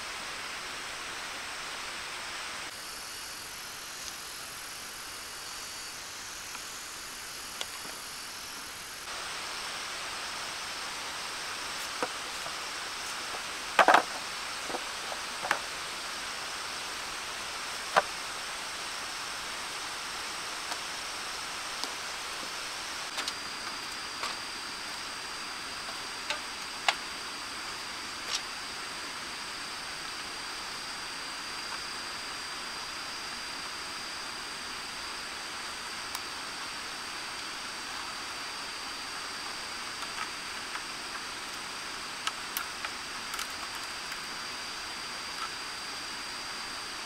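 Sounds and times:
outdoor hiss: 0.0s - 47.0s
thin high whine: 0.0s - 47.0s
wood and bamboo knocking: 13.8s - 15.6s.

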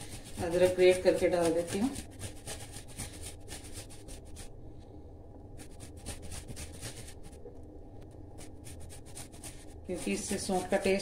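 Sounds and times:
ginger scraping on metal grater: 0.0s - 4.2s, 5.6s - 7.2s, 8.4s - 11.0s.

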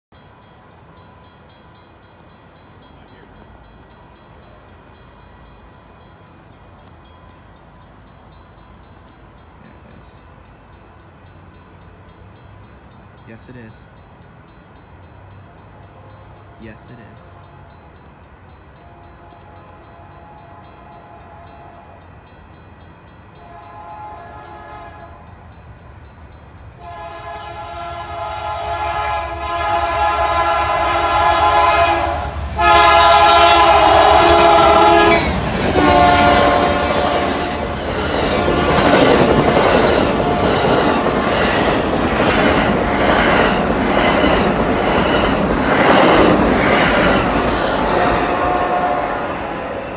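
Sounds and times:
locomotive air horn blasts: 18.8s - 22.0s, 23.4s - 25.3s, 26.8s - 37.7s, 48.0s - 49.4s.

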